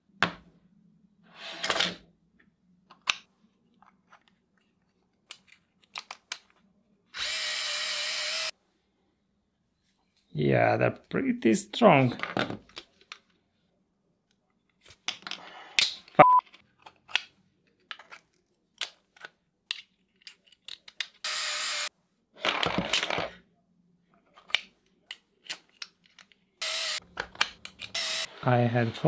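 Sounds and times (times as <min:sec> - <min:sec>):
magnets and screws clinking: 0:17.9 - 0:21.2, 0:27.2 - 0:28.2.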